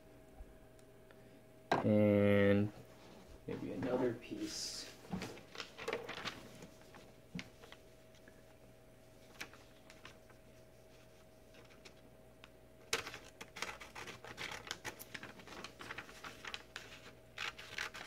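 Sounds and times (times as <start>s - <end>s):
paper scratches and clicks: 12.9s - 18.0s.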